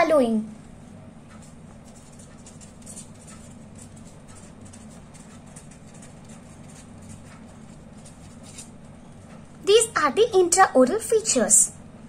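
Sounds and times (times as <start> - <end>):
steady low hum: 0.0 - 12.0
pen scratching on paper: 1.3 - 9.4.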